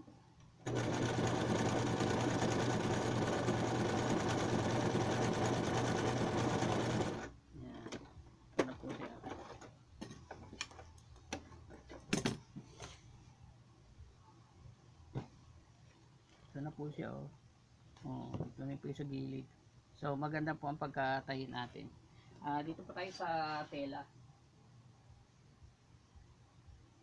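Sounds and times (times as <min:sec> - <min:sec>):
electric sewing machine running: 0:00.6 - 0:07.3.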